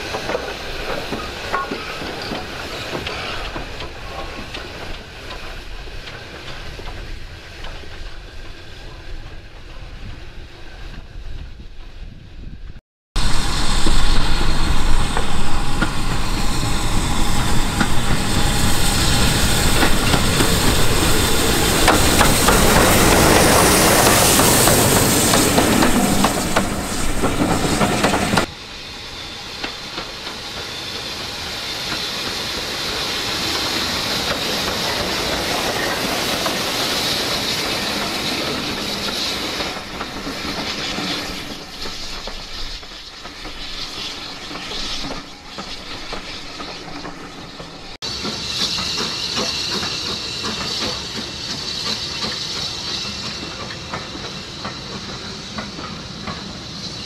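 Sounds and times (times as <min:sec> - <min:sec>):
steam train passing: 0:00.0 - 0:57.0.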